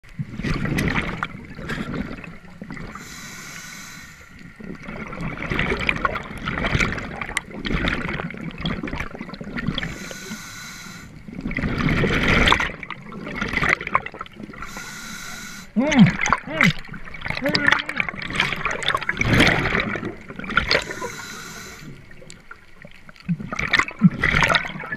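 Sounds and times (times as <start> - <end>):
diver breathing underwater: 1.6 - 4.8, 9.7 - 11.8, 14.5 - 16.3, 18.4 - 22.3.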